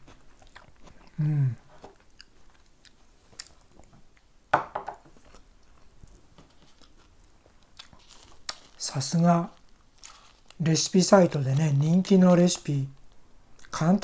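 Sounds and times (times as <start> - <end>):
person chewing food: 0.0 - 4.3, 5.1 - 8.8, 9.5 - 10.6
person humming: 1.1 - 1.7.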